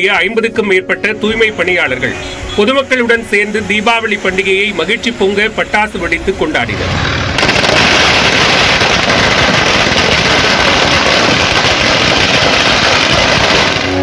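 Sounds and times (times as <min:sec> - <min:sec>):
firecrackers crackling and popping: 0:06.8 - 0:14.0.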